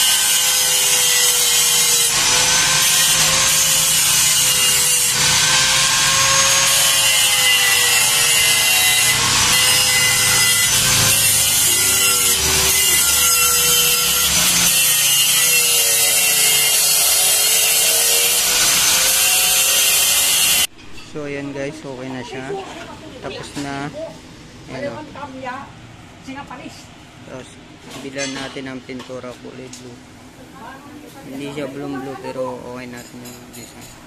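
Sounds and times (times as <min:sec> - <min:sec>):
power tool grinding with whine: 0:00.0 - 0:20.7.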